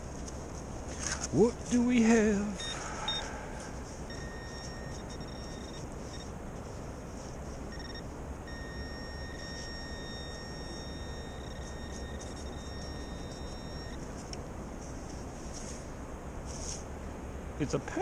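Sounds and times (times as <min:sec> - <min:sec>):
low steady rumble: 0:00.0 - 0:18.0
pinpointer steady high tone: 0:01.4 - 0:14.1.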